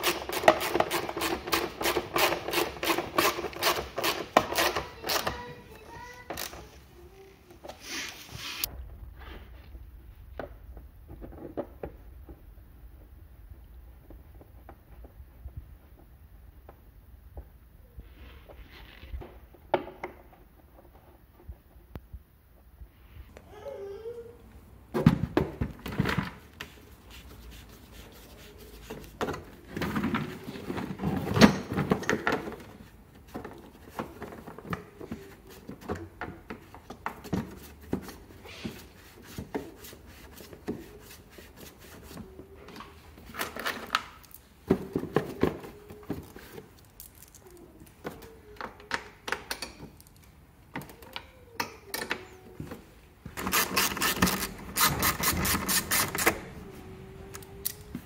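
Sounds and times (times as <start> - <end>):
plastic parts clicking and knocking: 42.8 - 52.4.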